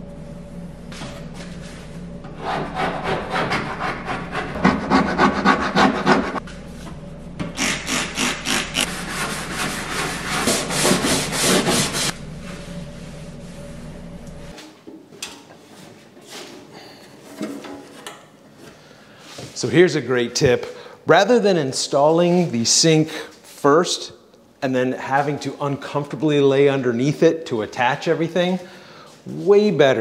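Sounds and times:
hand tool scraping hard surface: 7.6s - 12.2s.

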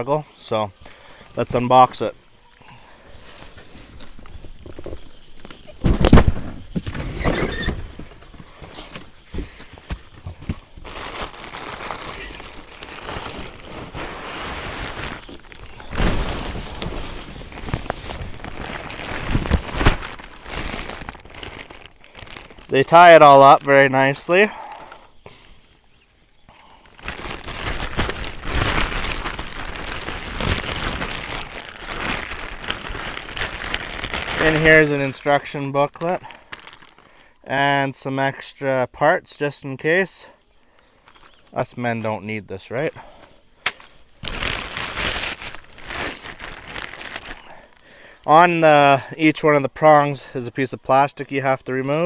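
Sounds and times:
packaging rustling: 3.4s - 23.9s, 26.8s - 35.3s, 36.3s - 37.2s, 43.7s - 47.6s
plastic wrapping crinkling: 7.0s - 25.0s, 26.7s - 37.2s, 43.7s - 47.7s.

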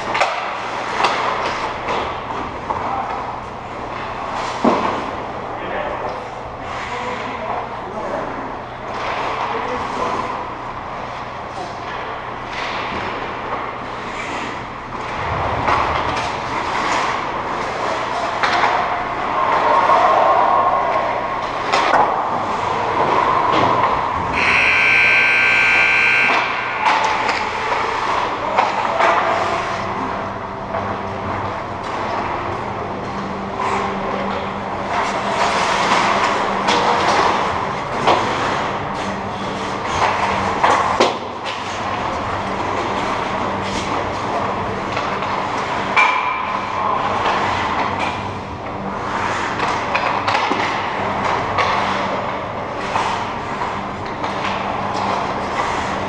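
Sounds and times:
hockey sticks and puck clacking: 0.0s - 5.2s, 10.9s - 20.3s, 20.9s - 30.1s, 30.7s - 56.0s
steady low hum: 21.3s - 46.0s
high-pitched tone: 24.4s - 27.2s
skate blades scraping ice: 51.6s - 56.0s.

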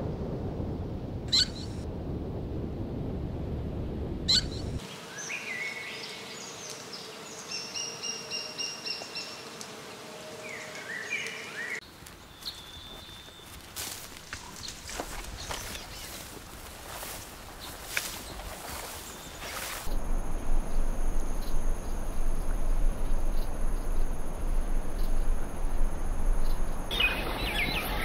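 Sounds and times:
songbirds chirping: 4.4s - 28.0s
low outdoor rushing noise: 14.5s - 28.0s.

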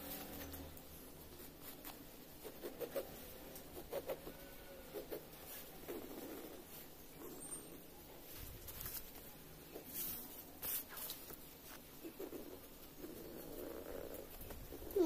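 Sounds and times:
pencil scratching on paper: 1.4s - 4.4s.

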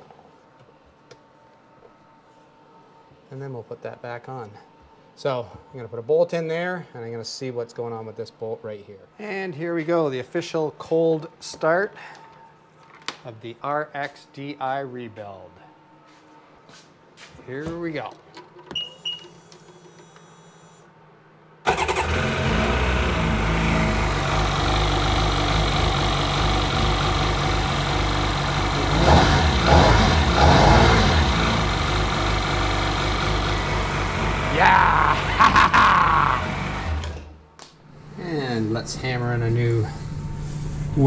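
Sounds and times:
two-stroke engine starting and revving: 21.7s - 37.4s.

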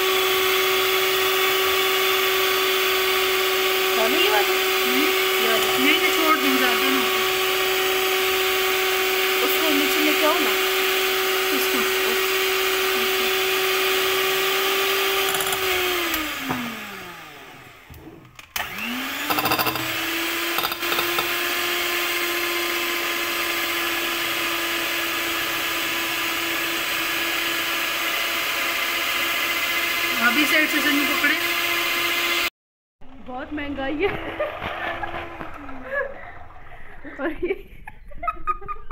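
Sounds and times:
electric hand mixer whirring: 0.0s - 32.5s, 33.2s - 38.9s
mixer beaters rattling: 33.3s - 37.6s.

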